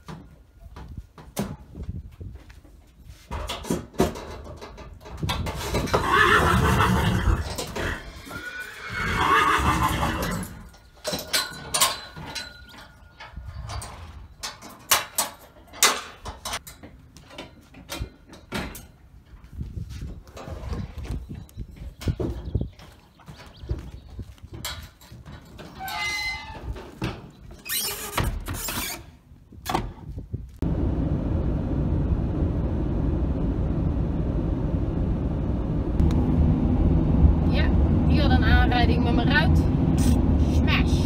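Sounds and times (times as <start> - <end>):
horses whinnying: 5.6 - 10.7
hooves knocking in horse lorry: 20.2 - 25.9.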